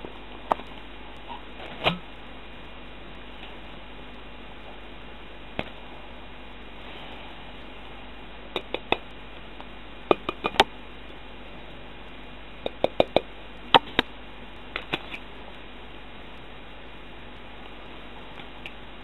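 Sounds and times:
steady hiss: 0:00.0 - 0:19.0
sharp clicks and light knocks: 0:08.5 - 0:10.7.

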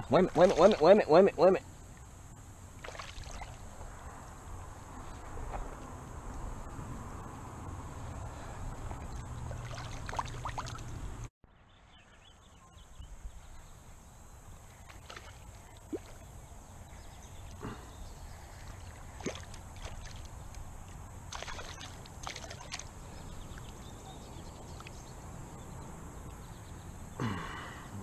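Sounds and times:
creek water sloshing: 0:00.0 - 0:05.9, 0:08.4 - 0:11.2, 0:14.6 - 0:25.1
fish splashing: 0:00.2 - 0:01.0, 0:02.7 - 0:03.8, 0:08.9 - 0:10.9, 0:14.8 - 0:16.3, 0:18.6 - 0:20.4, 0:21.3 - 0:22.9.

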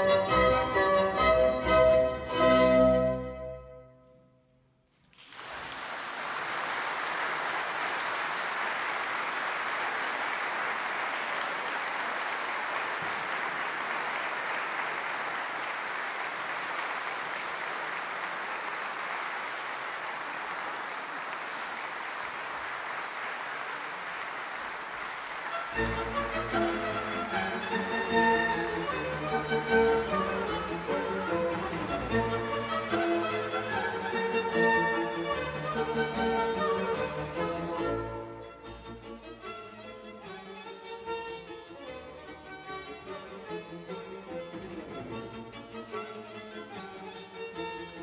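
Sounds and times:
audience applauding: 0:05.0 - 0:36.8.

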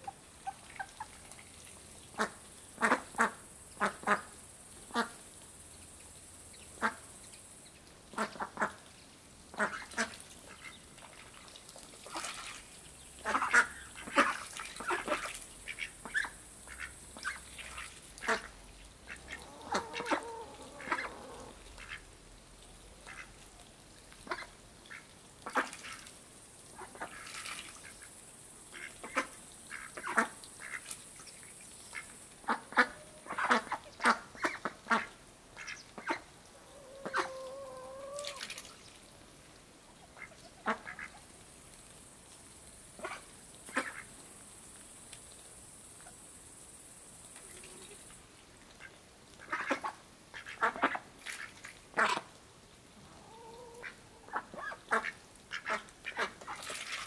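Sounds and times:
ducks quacking: 0:02.1 - 0:04.3, 0:09.5 - 0:10.8, 0:13.2 - 0:22.1, 0:23.0 - 0:23.4, 0:28.8 - 0:30.9, 0:31.9 - 0:38.6, 0:40.0 - 0:41.3, 0:48.8 - 0:52.3, 0:53.1 - 0:56.9.

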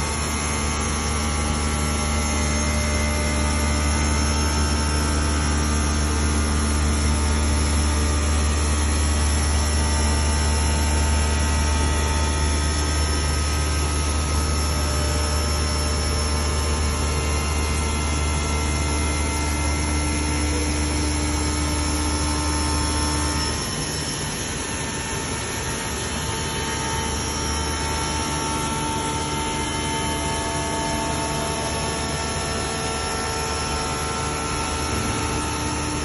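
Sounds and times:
machine low hum: 0:00.0 - 0:23.8, 0:25.8 - 0:36.0.

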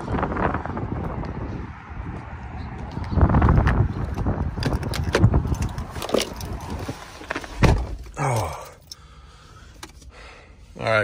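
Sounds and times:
car door slamming shut: 0:07.6 - 0:08.1.

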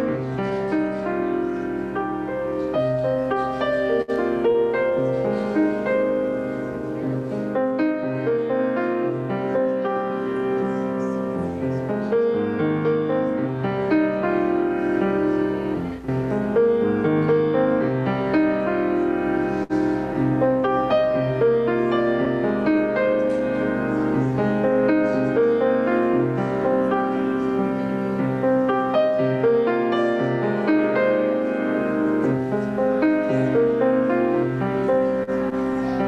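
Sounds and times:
piano music: 0:00.0 - 0:36.0.

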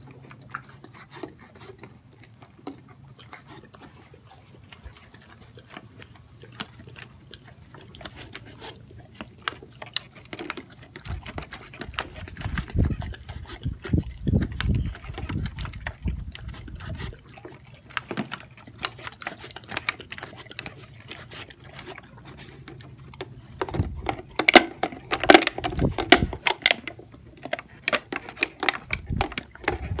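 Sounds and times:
dog licking wet mouth sounds: 0:00.0 - 0:30.0
plastic bottle crackling and clicking: 0:22.6 - 0:30.0.

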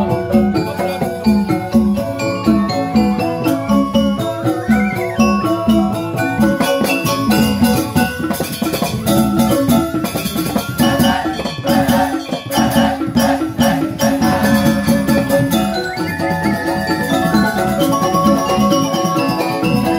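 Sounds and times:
bamboo xylophones ringing: 0:00.0 - 0:19.9
hand drums: 0:00.0 - 0:19.9
small jingling cymbals: 0:00.0 - 0:19.9.

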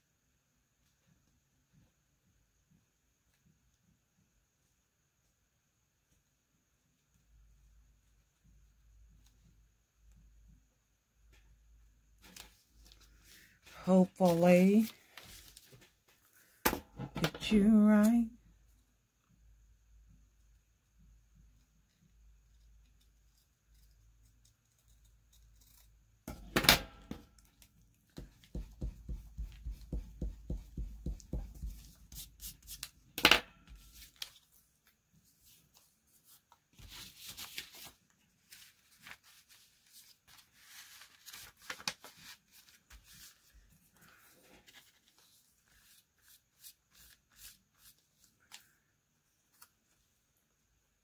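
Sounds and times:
paper rustling: 0:12.2 - 0:16.3, 0:33.7 - 0:48.8.

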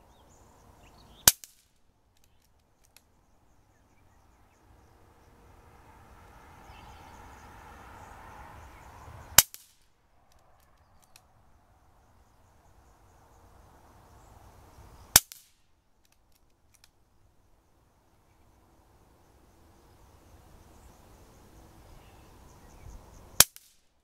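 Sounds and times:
air rifle shots: 0:01.2 - 0:01.7
faint clicks: 0:01.3 - 0:03.2, 0:09.4 - 0:11.3, 0:15.2 - 0:17.0.

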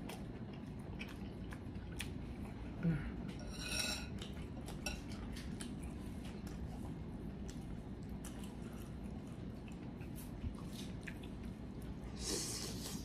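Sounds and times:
glass bowl clink: 0:03.4 - 0:04.1.

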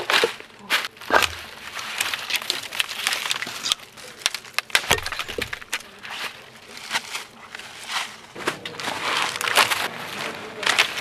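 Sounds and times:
dry sticks cracking and snapping: 0:00.0 - 0:06.2
footsteps crunching dry leaves: 0:00.1 - 0:11.0.

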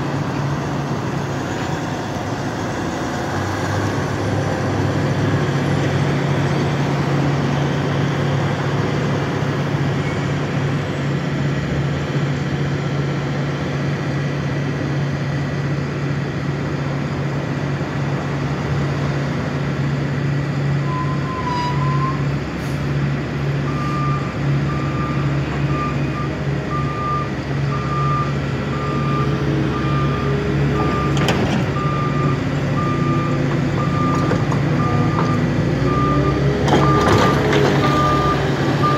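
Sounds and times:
diesel equipment droning: 0:00.0 - 0:38.9
vehicle backup alarm beeping: 0:23.6 - 0:38.9.

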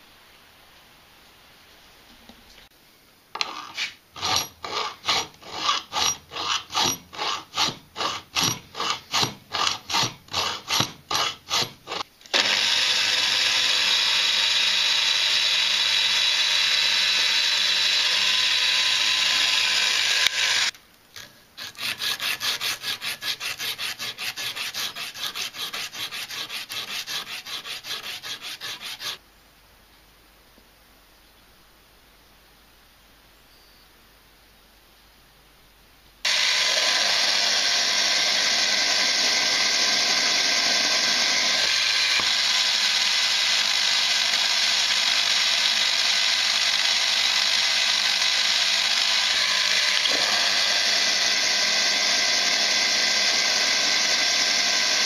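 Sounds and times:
drill press drilling steel: 0:03.4 - 0:20.7, 0:36.3 - 0:55.0.

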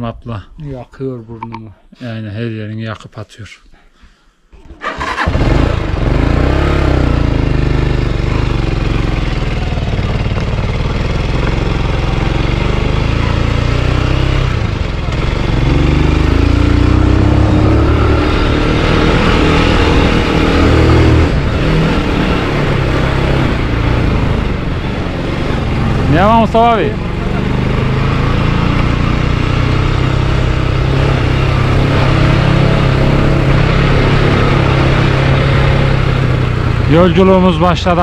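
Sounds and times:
motorcycle engine riding off: 0:04.7 - 0:38.0.

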